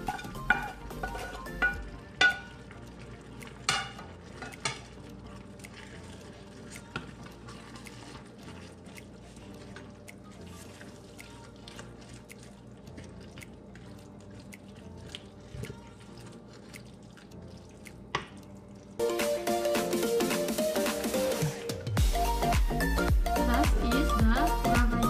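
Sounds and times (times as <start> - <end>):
wooden spatula scraping pan: 3.8 - 9.9
loud background music: 19.0 - 25.0.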